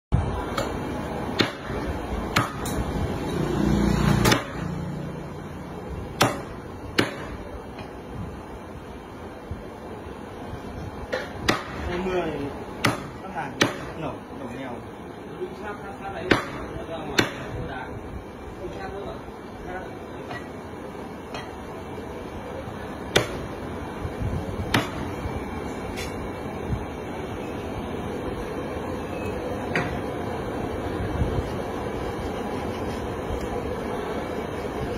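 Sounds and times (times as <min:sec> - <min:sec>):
cleaver chopping on wooden block: 0:02.3 - 0:02.8, 0:04.2 - 0:04.6, 0:06.2 - 0:07.4, 0:11.1 - 0:11.8, 0:12.8 - 0:13.9, 0:23.1 - 0:23.4.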